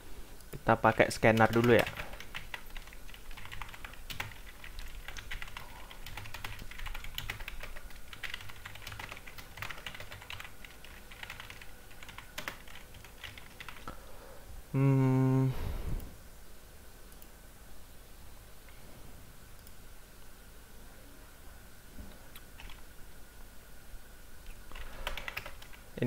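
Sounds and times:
keyboard typing: 0:00.9 - 0:13.9, 0:22.6 - 0:22.8, 0:24.7 - 0:25.8.

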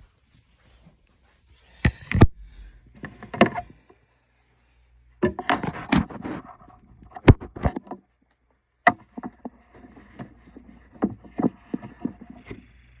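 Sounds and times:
phone bumping and rubbing: 0:05.2 - 0:07.8.

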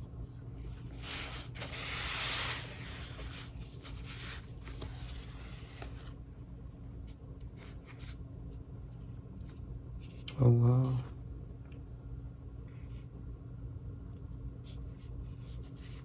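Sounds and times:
fabric rubbing and rustling: 0:00.7 - 0:06.2.

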